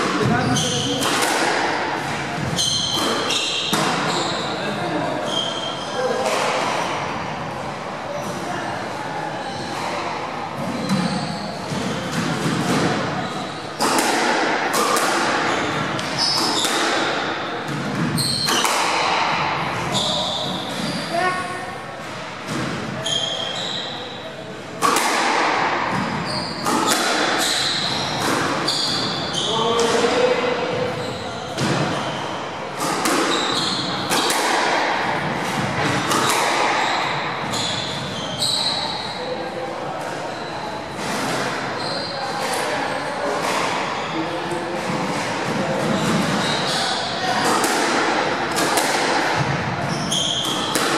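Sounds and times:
squash ball hitting rackets and walls: 0:00.0 - 0:08.5, 0:09.4 - 0:24.0, 0:24.6 - 0:39.3, 0:39.9 - 0:50.9
sneakers squeaking on wooden floor: 0:00.1 - 0:01.1, 0:02.0 - 0:07.4, 0:09.4 - 0:24.3, 0:25.8 - 0:39.3, 0:40.2 - 0:45.1, 0:45.8 - 0:50.9
shoes squeaking on wooden floor: 0:02.4 - 0:04.6, 0:05.2 - 0:06.0, 0:15.5 - 0:16.7, 0:17.7 - 0:18.7, 0:23.0 - 0:24.0, 0:25.9 - 0:30.1, 0:33.3 - 0:34.1, 0:35.7 - 0:39.1, 0:49.8 - 0:50.8.

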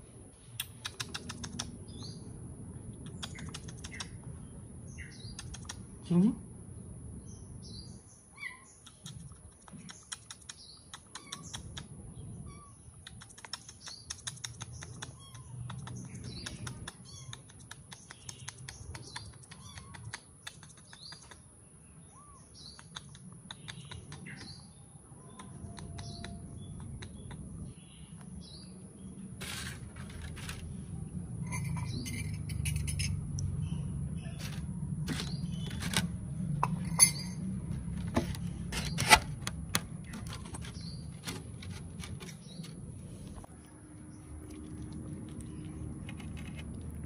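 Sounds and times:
small birds chirping: 0:00.4 - 0:47.0
quick faint clicks: 0:00.6 - 0:01.8, 0:08.8 - 0:11.9, 0:13.0 - 0:21.4.

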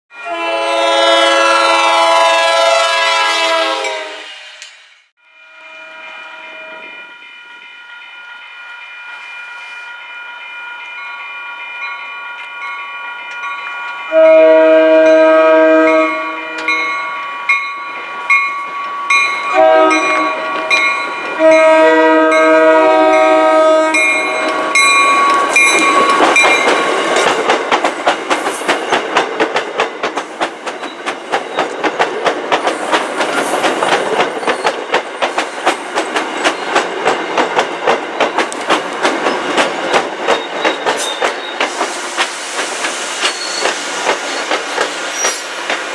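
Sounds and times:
train horn blasts: 0:00.1 - 0:04.6, 0:05.2 - 0:07.1, 0:14.0 - 0:17.6, 0:19.4 - 0:26.4
crossing signal bell ringing: 0:05.2 - 0:28.0
train wheels clacking over rail joints: 0:24.0 - 0:45.9.

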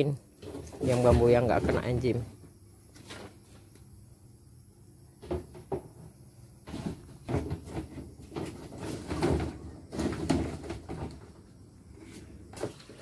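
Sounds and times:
bamboo poles clattering: 0:00.4 - 0:02.2, 0:05.2 - 0:11.5, 0:12.2 - 0:13.0.

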